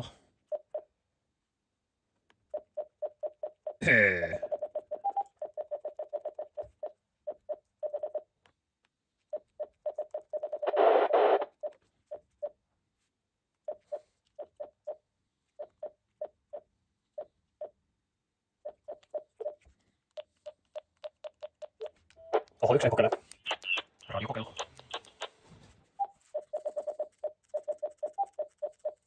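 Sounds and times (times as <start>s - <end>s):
short keypad beeps: 26.0s - 29.0s.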